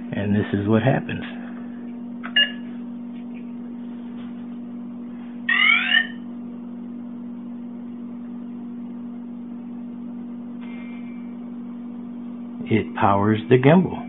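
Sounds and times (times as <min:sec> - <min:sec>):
steady low hum: 0:00.0 - 0:14.0
quick rising electronic chirps: 0:05.5 - 0:06.2.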